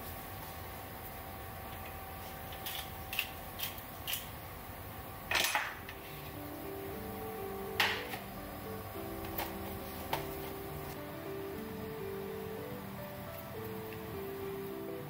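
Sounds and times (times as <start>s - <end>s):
steady hum: 0.0s - 15.0s
music: 5.8s - 15.0s.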